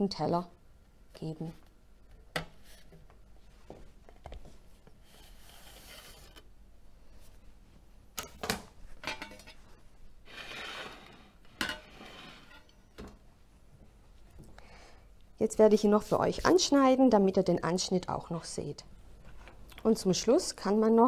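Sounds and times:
plate scraping along counter: 5.0s - 6.4s, 10.2s - 12.8s.

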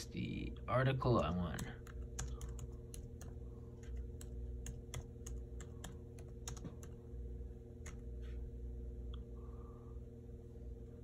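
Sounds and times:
typing on laptop keyboard: 1.2s - 7.0s
low hum: 1.6s - 11.0s.

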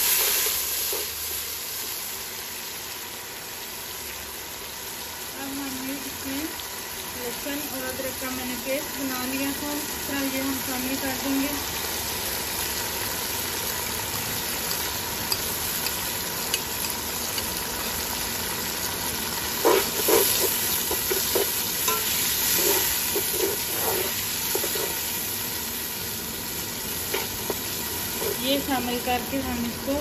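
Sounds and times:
paste sizzling in hot oil: 0.0s - 30.0s
skimmer scraping metal pot: 19.6s - 25.2s.

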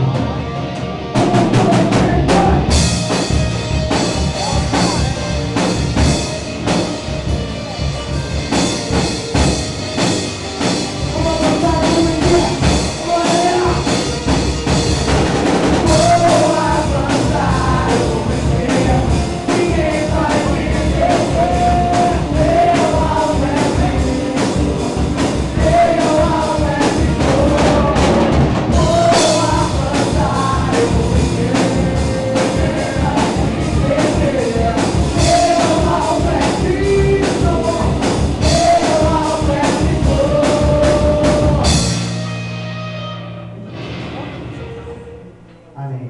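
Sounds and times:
drum kit: 0.0s - 46.0s
electric guitar: 0.0s - 46.0s
people singing into microphones: 1.2s - 6.2s, 11.0s - 42.2s.

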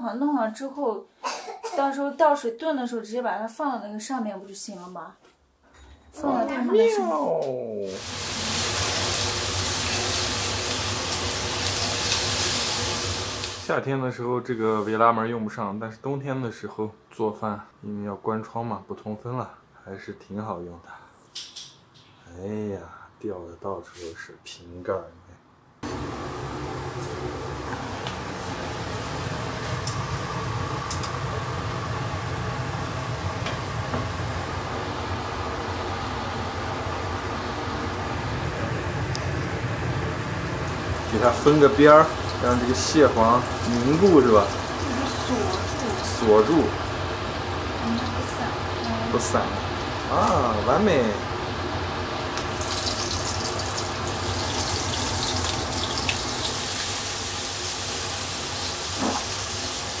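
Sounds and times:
range hood fan whirring: 5.5s - 14.0s, 25.8s - 60.0s
frying in hot oil sizzling: 7.8s - 13.8s, 25.9s - 35.7s, 39.9s - 60.0s.

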